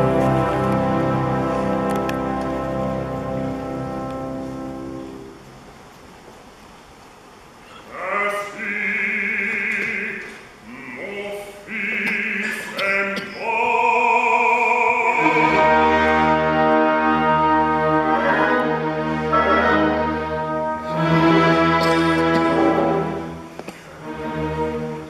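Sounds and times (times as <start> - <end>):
orchestra sustained low notes: 0.0 - 6.4, 7.3 - 25.0
operatic solo singing: 7.8 - 21.5.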